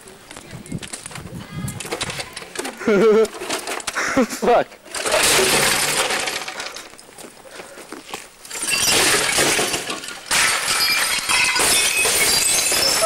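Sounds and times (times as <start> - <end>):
monitors being smashed: 4.9 - 7.0, 8.5 - 13.0
glass shards tinkling: 8.5 - 13.0.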